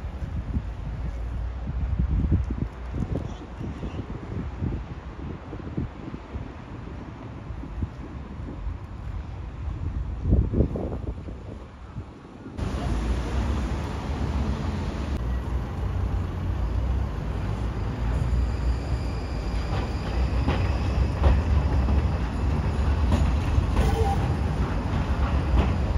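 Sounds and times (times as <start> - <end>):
tram wheels rumbling on rails: 5.8 - 25.9
high wheel squeal: 16.6 - 24.6.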